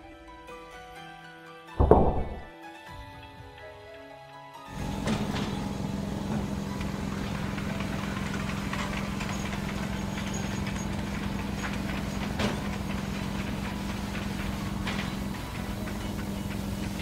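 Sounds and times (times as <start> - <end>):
crane engine running: 4.7 - 17.0.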